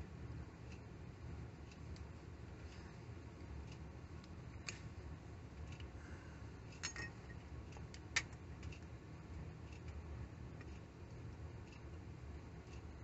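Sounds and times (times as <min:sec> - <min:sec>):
low steady hum: 0:00.0 - 0:13.0
small metal tools clicking: 0:06.7 - 0:08.8.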